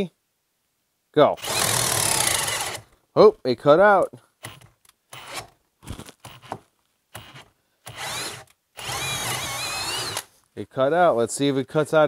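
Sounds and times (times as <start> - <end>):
cordless drill boring into wood: 1.4 - 2.9, 4.4 - 5.6, 6.3 - 6.6, 7.2 - 10.3.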